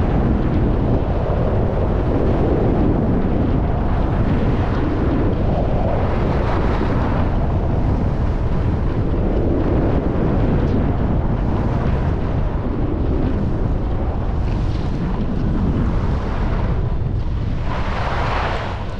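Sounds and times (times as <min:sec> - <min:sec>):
wind rushing over microphone: 0:00.0 - 0:18.9.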